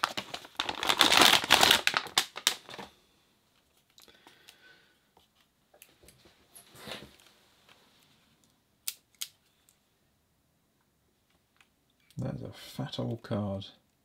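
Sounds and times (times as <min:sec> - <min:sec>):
plastic bag crinkling: 0:00.0 - 0:03.0.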